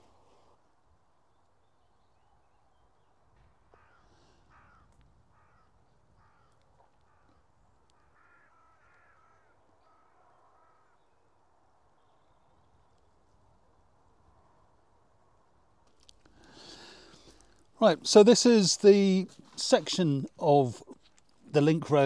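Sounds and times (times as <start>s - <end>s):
crow cawing: 3.7s - 11.1s.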